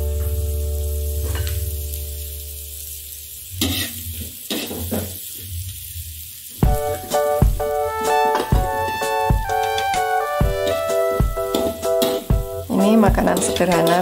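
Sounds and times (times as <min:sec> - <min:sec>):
food sizzling in hot oil: 0:00.0 - 0:14.0
spatula scraping a wok: 0:03.5 - 0:05.6, 0:11.4 - 0:12.4.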